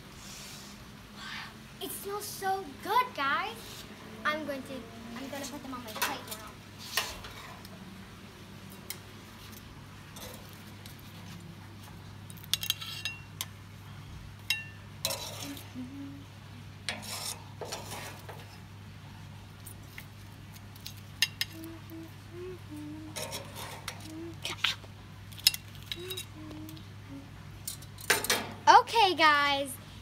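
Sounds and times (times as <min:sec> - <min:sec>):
metal tongs clinking on grill: 0:12.3 - 0:13.5, 0:14.5 - 0:15.6, 0:21.2 - 0:21.6, 0:25.3 - 0:26.3
low hum: 0:13.1 - 0:17.0, 0:18.4 - 0:27.9.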